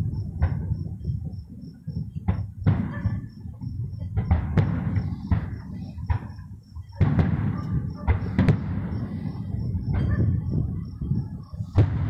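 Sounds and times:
fireworks sharp bangs: 0:00.0 - 0:12.0
low rumble of booms: 0:00.0 - 0:12.0.

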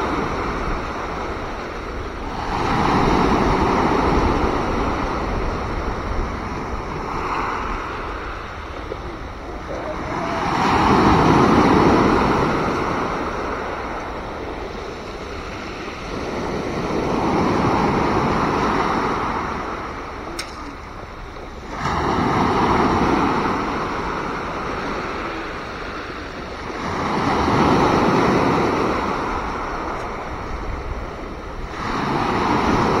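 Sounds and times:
sea waves breaking on beach: 0:00.0 - 0:33.0
brief click: 0:20.4 - 0:20.8.

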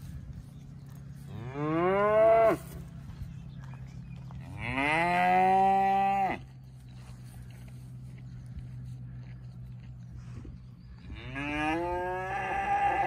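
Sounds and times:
cow mooing: 0:04.6 - 0:06.5, 0:11.1 - 0:13.0.

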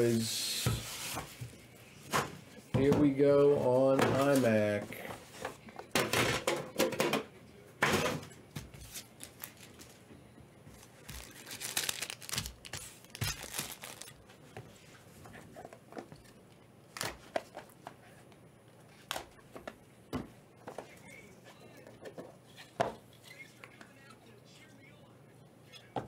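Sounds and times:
packaging tearing and crinkling: 0:11.0 - 0:14.2.

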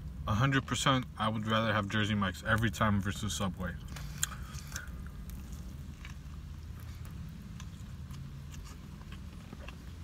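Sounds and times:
steady low hum: 0:00.0 - 0:10.0
wet chewing mouth clicks: 0:03.9 - 0:10.0.

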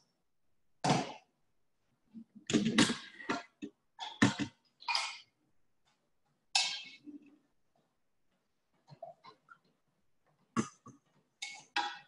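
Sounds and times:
cookware clattering and scraping: 0:02.4 - 0:05.4, 0:06.5 - 0:07.5, 0:10.4 - 0:12.0.

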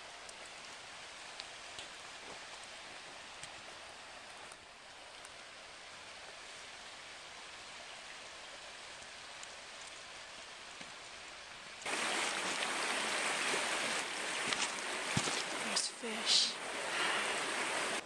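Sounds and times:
faint outdoor hiss: 0:00.0 - 0:18.0
creek rushing over stones: 0:05.0 - 0:18.0.

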